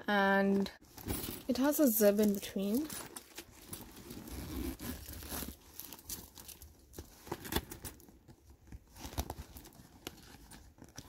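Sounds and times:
leather bag rustling: 0.8s - 8.1s.

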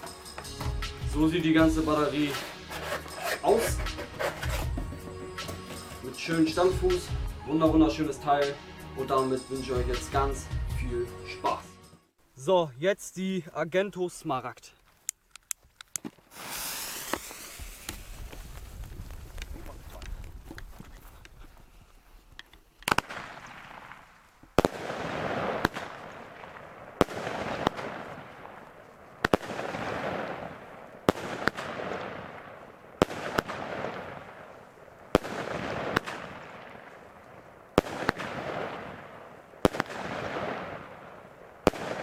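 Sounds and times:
firework shell bursting: 1.8s - 6.1s, 15.4s - 20.6s
rushing hiss of climbing shell: 2.2s - 4.6s, 16.3s - 18.9s
firework launch bangs: 16.3s - 20.1s, 22.9s - 28.6s, 29.2s - 34.5s, 35.1s - 36.8s, 37.8s - 42.0s.

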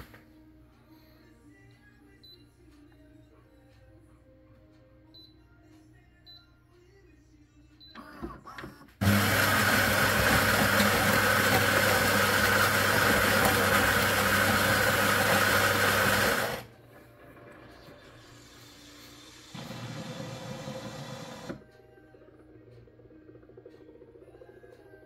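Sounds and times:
coffee grinder running: 9.0s - 16.7s, 19.2s - 21.6s
machine mechanical whirr: 16.3s - 24.8s.

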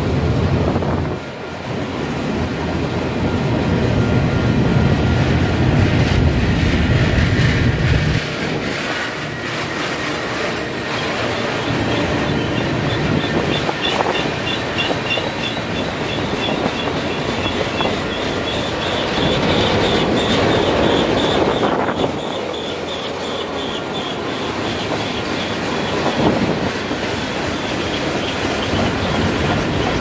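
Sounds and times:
freight train wheels rumbling: 0.0s - 30.0s
pulsing wheel squeal: 6.8s - 30.0s.

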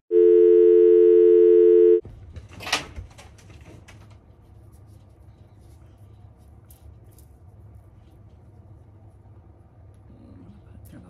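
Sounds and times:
two-tone telephone dial tone: 0.1s - 2.0s
air conditioner hum: 0.1s - 11.0s.

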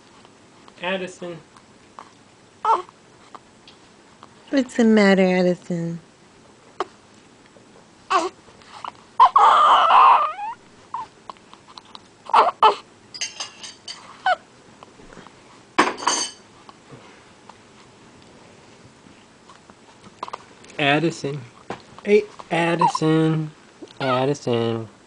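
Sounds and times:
baby crying: 2.6s - 2.9s, 8.1s - 8.4s, 9.2s - 11.1s, 12.3s - 12.8s, 22.7s - 23.0s, 24.0s - 24.3s
baby whimpering and grunting: 2.6s - 2.9s, 8.1s - 11.2s, 11.8s - 12.9s, 22.5s - 23.2s.

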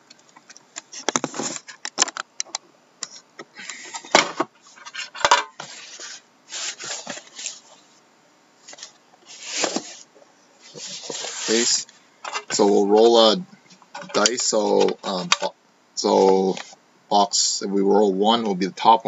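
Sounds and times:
cardboard scraping: 4.6s - 7.9s, 8.6s - 11.8s.

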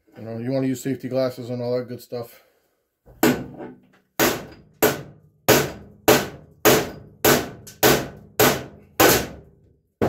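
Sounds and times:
hammer striking steel chisel: 4.2s - 9.4s.

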